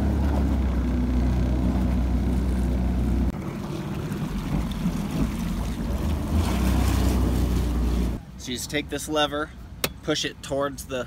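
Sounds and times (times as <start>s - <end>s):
watercraft engine running: 0.0s - 8.2s.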